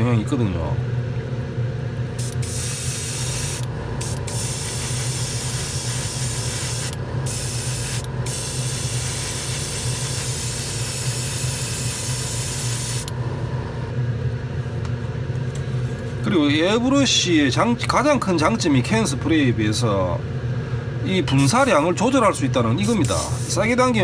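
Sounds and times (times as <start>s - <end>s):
airbrush spraying hiss: 2.2s - 13.1s, 22.8s - 23.7s.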